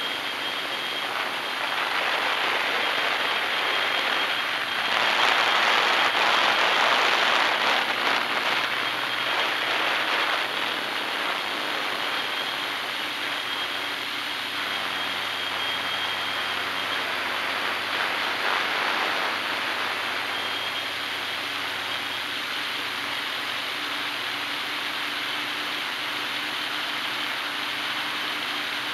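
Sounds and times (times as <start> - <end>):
drone propellers whirring: 0.0 - 20.6.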